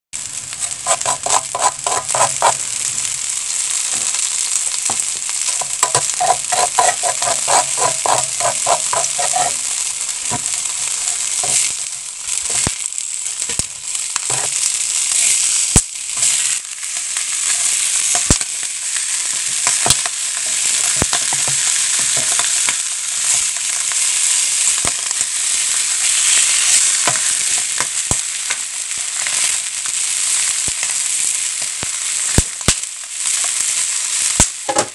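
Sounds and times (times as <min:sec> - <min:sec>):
fish sizzling on salt: 0:00.2 - 0:34.9
wooden spatula strokes: 0:00.6 - 0:02.6, 0:05.8 - 0:10.5.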